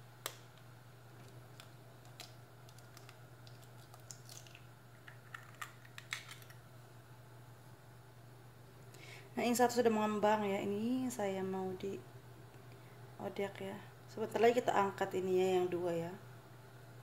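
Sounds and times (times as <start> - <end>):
low steady hum: 0.0 - 17.0
egg cracking by hand: 0.2 - 6.6.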